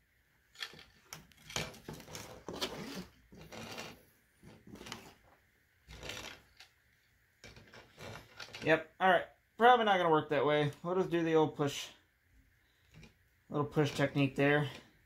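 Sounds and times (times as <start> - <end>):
wire rustling through cable sleeve: 0.5 - 6.8, 7.4 - 8.8.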